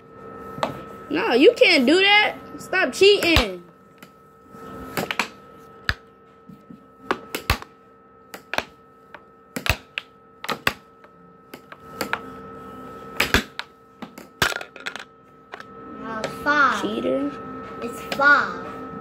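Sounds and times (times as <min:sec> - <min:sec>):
steady hum: 0:00.0 - 0:19.0
air hockey puck and mallets clacking: 0:08.4 - 0:08.8, 0:09.6 - 0:10.8.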